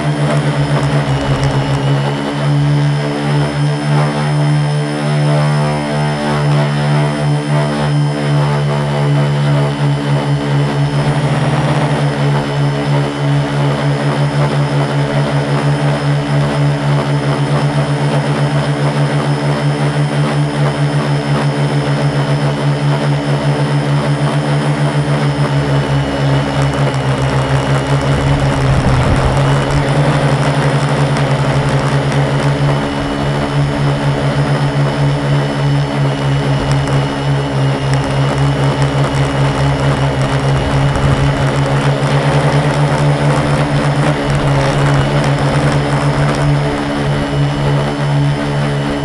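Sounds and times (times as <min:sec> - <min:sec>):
quadcopter motors droning: 0:00.0 - 0:49.0
low rumble: 0:28.0 - 0:30.0.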